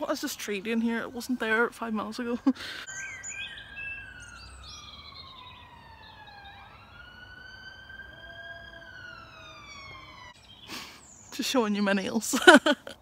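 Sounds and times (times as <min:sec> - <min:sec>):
faint siren wailing: 0:02.8 - 0:10.5.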